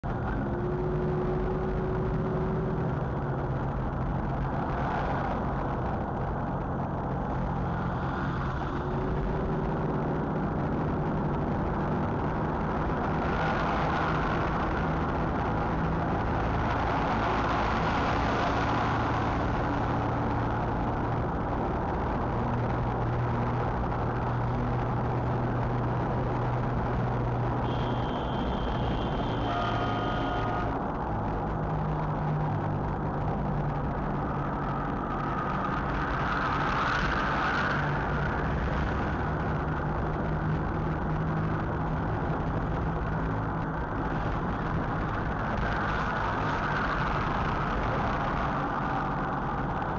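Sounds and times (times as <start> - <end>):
road noise: 0.0 - 49.9.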